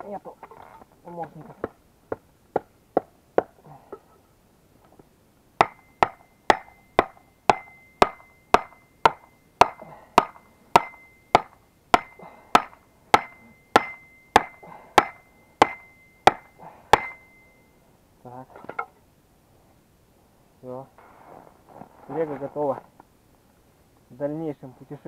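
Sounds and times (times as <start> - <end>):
hammer striking wooden block: 5.6 - 17.4
high metallic ring: 5.6 - 17.9.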